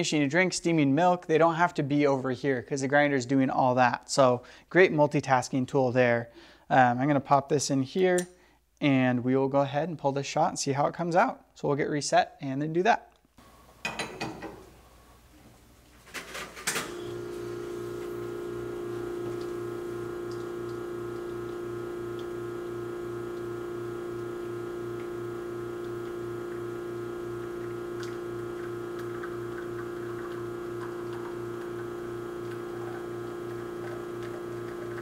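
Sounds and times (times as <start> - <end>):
espresso machine pump humming: 16.7 - 35.0.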